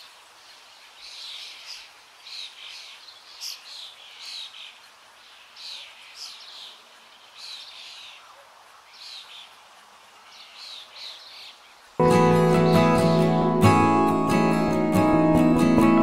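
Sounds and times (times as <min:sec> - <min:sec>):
faint steady hiss: 0:00.0 - 0:16.0
bird chirping: 0:10.2 - 0:15.1
acoustic guitar music: 0:12.0 - 0:16.0.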